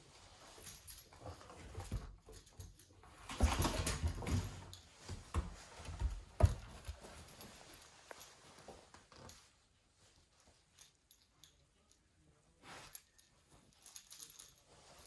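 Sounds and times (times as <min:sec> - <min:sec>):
rustling: 0:00.0 - 0:15.0
puppy paw steps on wooden floor: 0:03.3 - 0:07.5.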